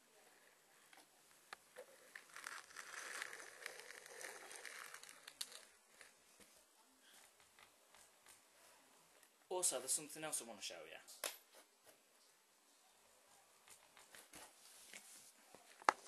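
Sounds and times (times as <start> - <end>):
faint rustling and crinkling: 0.0 - 16.0.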